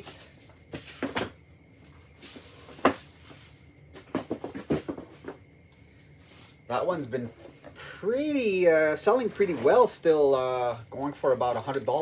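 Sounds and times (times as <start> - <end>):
hard plastic cases knocking: 4.0 - 5.4.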